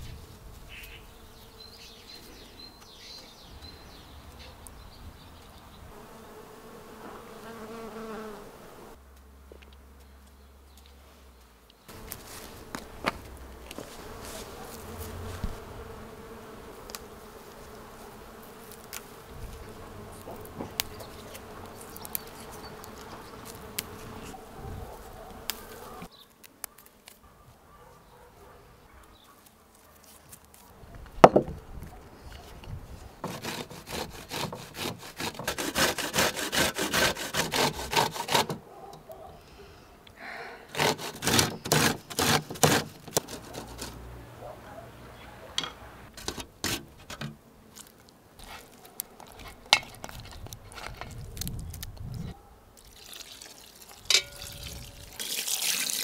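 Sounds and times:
bees buzzing: 0:05.8 - 0:09.0, 0:11.9 - 0:26.1
food grated on metal grater: 0:33.2 - 0:38.6, 0:40.8 - 0:44.0.

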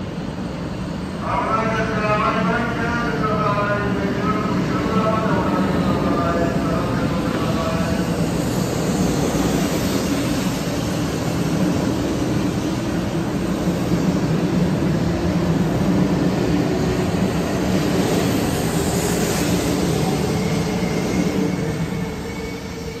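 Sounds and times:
train running noise: 0:00.0 - 0:23.0.

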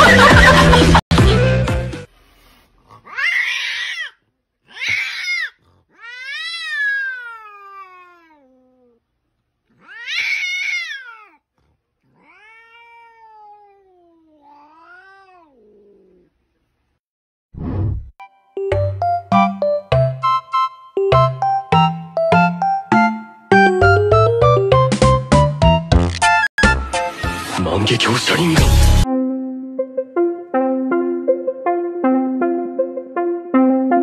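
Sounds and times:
cat yowling: 0:03.0 - 0:09.0, 0:09.7 - 0:11.5, 0:12.1 - 0:16.3.

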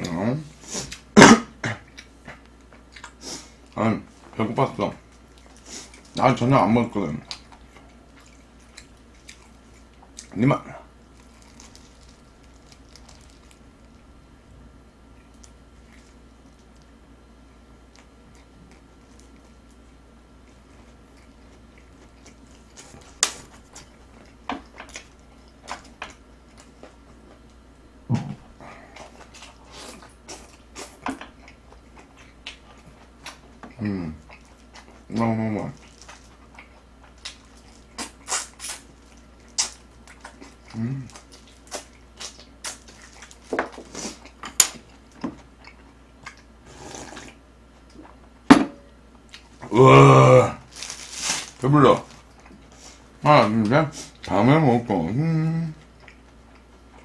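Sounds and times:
quiet chewing: 0:00.8 - 0:04.4, 0:05.0 - 0:06.2, 0:07.2 - 0:14.1, 0:15.1 - 0:48.4, 0:49.1 - 0:49.7, 0:50.7 - 0:54.4, 0:55.6 - 0:57.0
slurping broth: 0:46.6 - 0:47.4.

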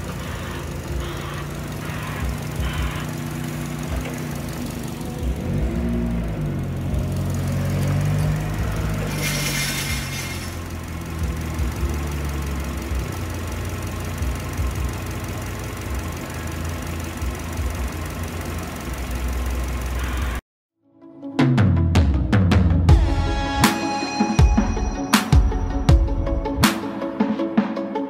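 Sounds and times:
car engine running steadily: 0:00.0 - 0:20.4.

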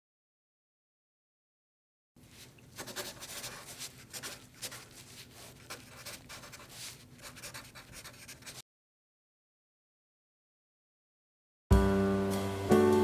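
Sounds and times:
marker pen scratching on paper: 0:02.3 - 0:08.6.

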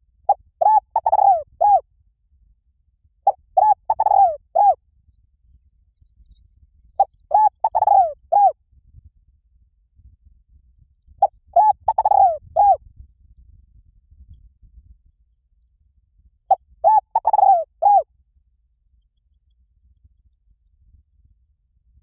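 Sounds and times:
dove cooing: 0:00.3 - 0:01.8, 0:03.3 - 0:04.8, 0:07.3 - 0:08.5, 0:11.6 - 0:12.8, 0:16.8 - 0:18.0.

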